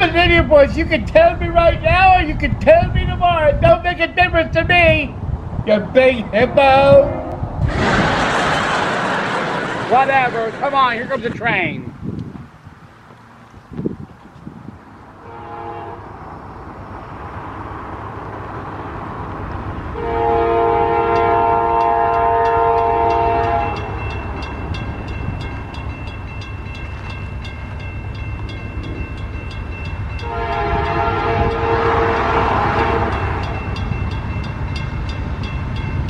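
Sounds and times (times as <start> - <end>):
low train rumble: 0.0 - 36.0
train horn blast: 6.8 - 7.5, 15.2 - 16.1, 20.0 - 24.0, 30.2 - 33.8
railroad crossing bell dinging: 20.6 - 36.0.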